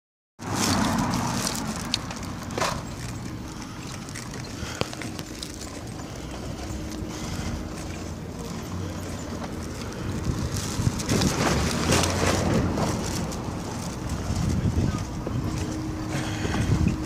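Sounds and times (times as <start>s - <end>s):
bicycle tyre rumble on pavement: 0.4s - 17.0s
bike clicks and rattles: 0.4s - 17.0s
wind on microphone: 10.0s - 17.0s.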